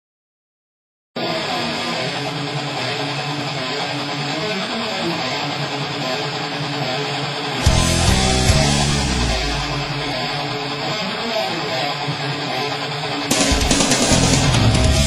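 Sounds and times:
strummed guitar music: 1.2s - 15.0s
heavy bass music: 7.6s - 10.6s, 13.3s - 15.0s.

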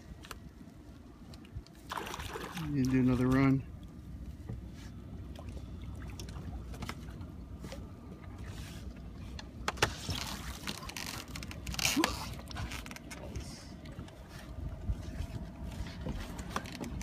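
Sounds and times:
wind and water noise: 0.0s - 17.0s
fish splashing at water surface: 1.8s - 2.7s.

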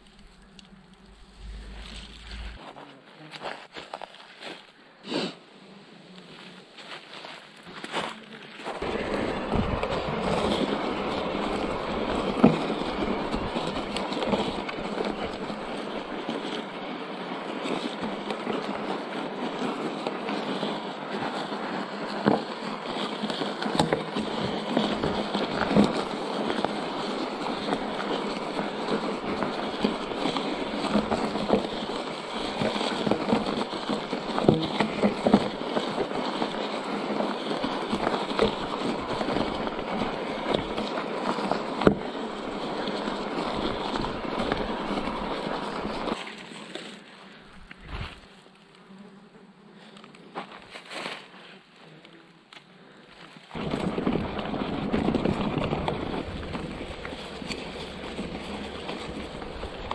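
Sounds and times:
bike tyres crunching on gravel: 0.0s - 4.8s, 6.3s - 48.7s, 50.3s - 51.6s, 53.1s - 59.9s
bike knocking and rattling: 8.8s - 46.2s, 53.6s - 59.9s.

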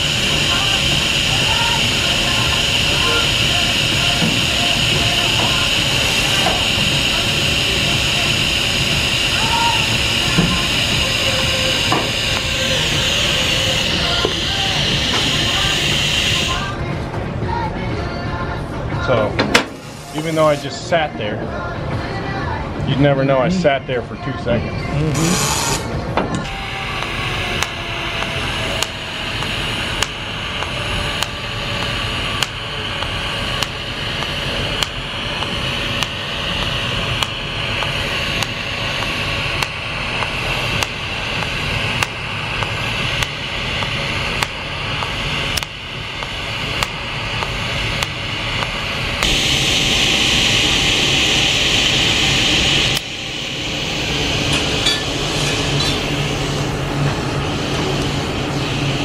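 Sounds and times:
loud steady hiss: 0.0s - 16.8s, 19.6s - 21.2s, 26.5s - 59.0s
welding arc hissing and buzzing: 0.0s - 16.8s, 19.6s - 21.1s, 25.0s - 59.0s
low hum: 24.8s - 59.0s
regular clicks: 27.0s - 49.4s.

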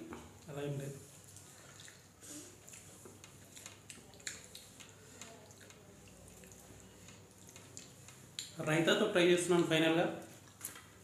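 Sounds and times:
soft eating clicks: 2.6s - 8.6s.

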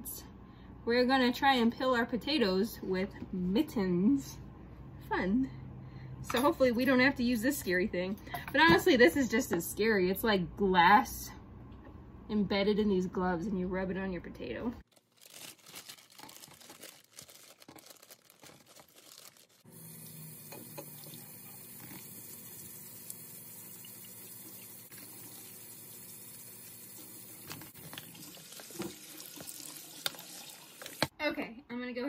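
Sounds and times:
rustling bag: 14.9s - 19.7s
vegetables rubbed and rinsed: 15.0s - 20.4s, 24.3s - 31.1s
tap running into colander: 19.9s - 31.1s.

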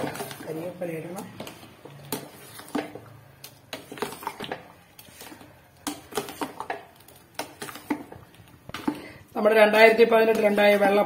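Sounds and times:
spoon clinking and scraping pot: 1.4s - 9.1s, 9.8s - 11.0s.

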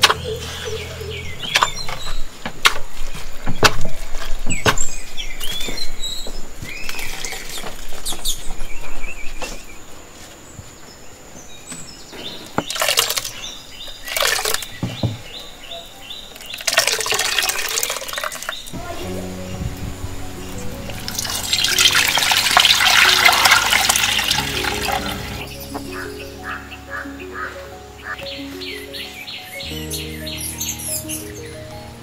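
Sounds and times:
birds chirping: 0.0s - 32.0s
wet squelching of squeezed coconut: 12.7s - 14.7s, 16.5s - 18.6s, 21.1s - 25.4s.

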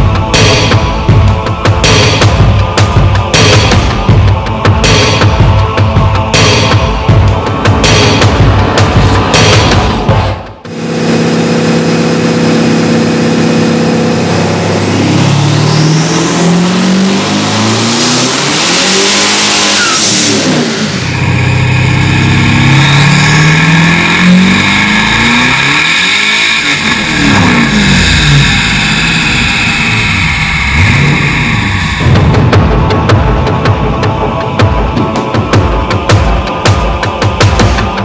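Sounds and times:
car engine revving on dyno: 10.6s - 32.5s.

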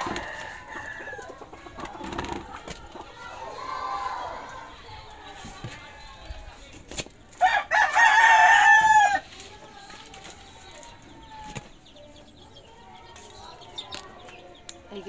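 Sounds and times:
rooster crowing: 0.0s - 1.3s, 7.4s - 9.2s.

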